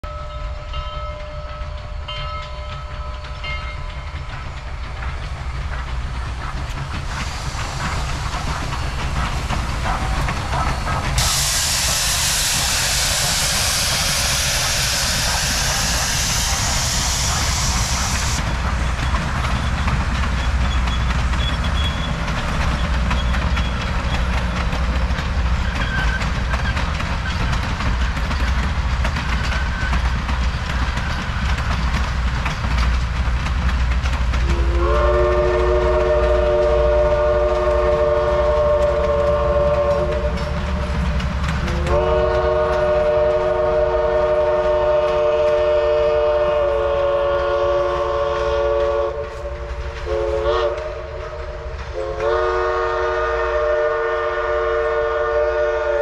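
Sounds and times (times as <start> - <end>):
steam locomotive rumbling: 0.0 - 56.0
train wheels clicking over rail joints: 0.6 - 56.0
loud hiss of steam: 4.1 - 33.3.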